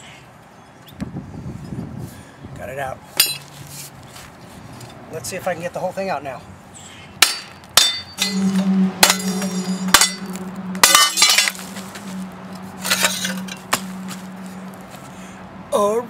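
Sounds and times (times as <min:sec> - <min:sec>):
hammer clanking on metal: 0:07.2 - 0:11.6
low hum: 0:08.1 - 0:15.4.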